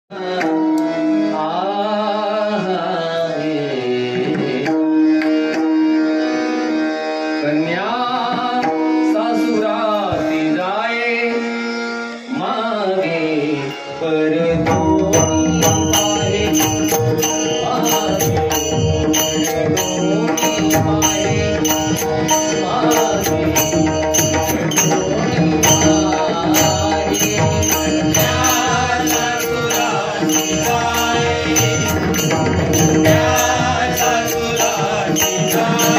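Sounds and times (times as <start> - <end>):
man singing: 0.1 - 5.3, 7.4 - 35.9
hand drum: 14.7 - 35.9
high metallic beat: 15.2 - 35.9.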